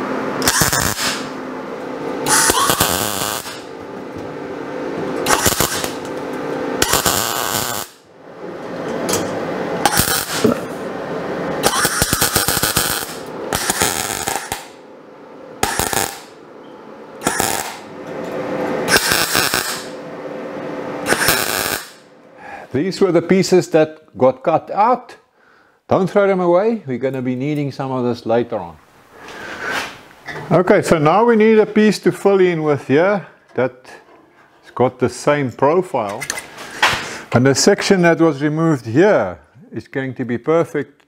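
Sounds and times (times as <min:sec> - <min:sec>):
steady low hum: 0:00.0 - 0:41.0
welder arc bursts: 0:00.4 - 0:01.4, 0:02.2 - 0:03.7, 0:05.2 - 0:06.1, 0:06.8 - 0:08.0, 0:09.8 - 0:10.6, 0:11.6 - 0:14.8, 0:15.6 - 0:16.4, 0:17.2 - 0:17.9, 0:18.8 - 0:20.0, 0:21.0 - 0:22.1.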